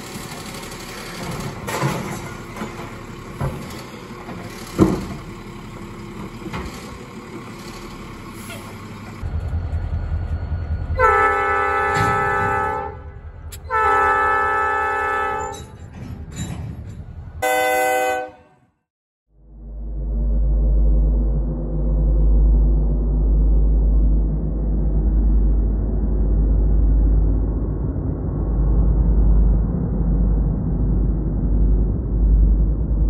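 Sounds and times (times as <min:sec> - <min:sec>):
garbage truck engine running: 0:00.0 - 0:17.4
diesel locomotive rumbling: 0:00.0 - 0:18.8, 0:19.4 - 0:33.0
train air horn blasts: 0:10.9 - 0:15.7, 0:17.4 - 0:18.7.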